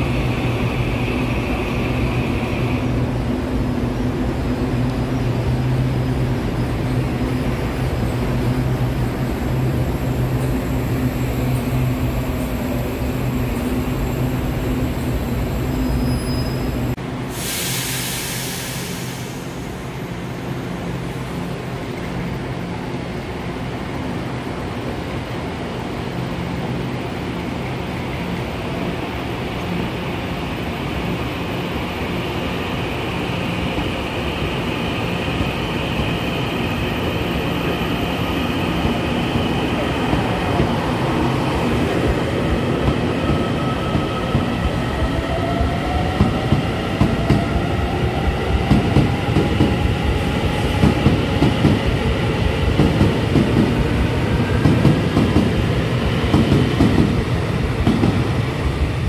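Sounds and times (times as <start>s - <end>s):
train running along platform: 0.0s - 59.0s
brief hiss: 17.3s - 19.7s.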